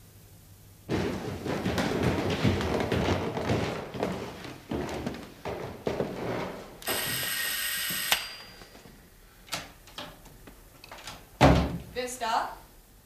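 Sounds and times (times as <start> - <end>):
electric doorbell buzzing: 6.8 - 8.8
loud thump: 11.4 - 11.8.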